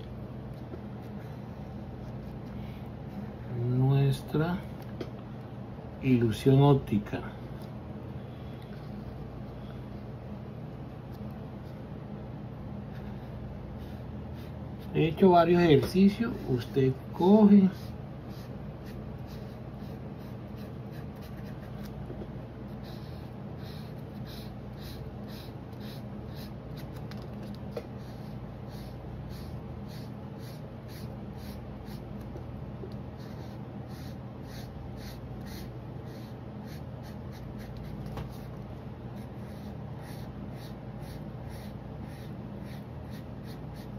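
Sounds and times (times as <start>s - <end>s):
steady low hum: 0.0s - 43.9s
marker scratching on paper: 12.9s - 15.2s, 17.6s - 22.0s, 22.6s - 32.3s, 33.1s - 43.9s.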